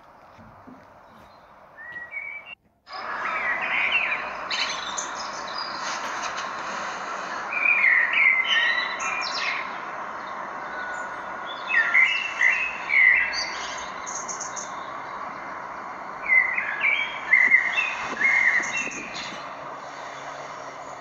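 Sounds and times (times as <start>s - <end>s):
songbirds chirping: 0.0s - 21.0s
steady rushing hiss: 2.9s - 21.0s.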